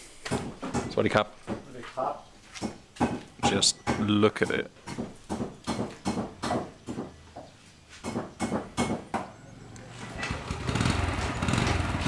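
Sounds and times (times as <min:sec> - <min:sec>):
small engine: 0:10.1 - 0:12.0.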